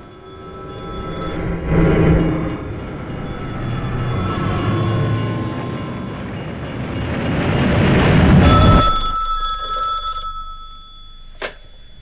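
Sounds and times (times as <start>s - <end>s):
loud rumbling rush: 0.1s - 9.3s
telephone ringing: 8.3s - 12.0s.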